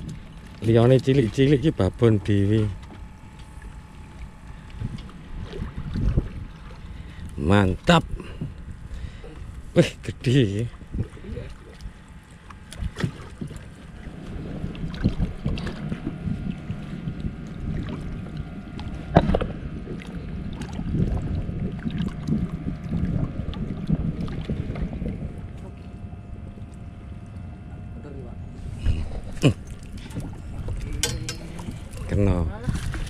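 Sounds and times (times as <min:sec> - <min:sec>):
knocks and clicks on boat: 0:00.0 - 0:07.4, 0:10.7 - 0:13.8, 0:14.7 - 0:26.0, 0:29.0 - 0:33.0
boat engine rumble: 0:00.0 - 0:33.0
faint steady hum: 0:00.0 - 0:33.0
wind noise: 0:04.8 - 0:09.7, 0:12.8 - 0:26.2, 0:28.6 - 0:33.0.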